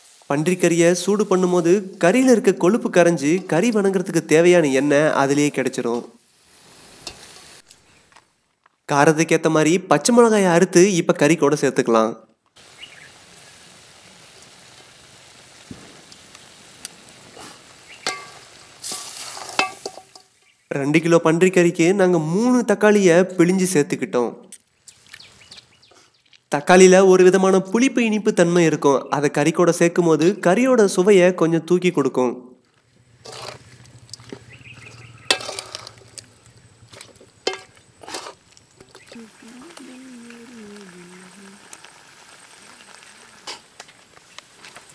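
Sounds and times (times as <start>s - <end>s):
pork sizzling in a pan: 0.0s - 3.9s, 4.6s - 7.7s, 12.6s - 20.7s, 33.0s - 44.9s
metal ladle scraping a wok: 6.8s - 7.6s, 17.4s - 20.3s, 33.2s - 36.3s, 36.9s - 39.0s.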